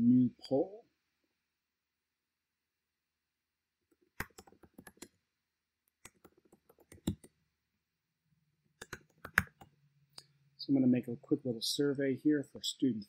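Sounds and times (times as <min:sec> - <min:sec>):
keyboard typing: 0:03.9 - 0:05.2, 0:05.9 - 0:07.4, 0:08.8 - 0:09.8.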